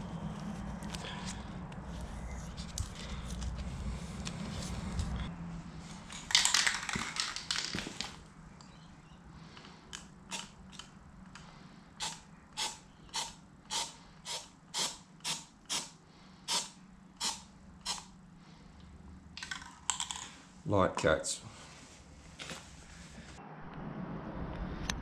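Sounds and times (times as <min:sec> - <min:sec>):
short sharp spray bursts: 0:12.0 - 0:18.1
spray paint can hissing: 0:12.0 - 0:18.1.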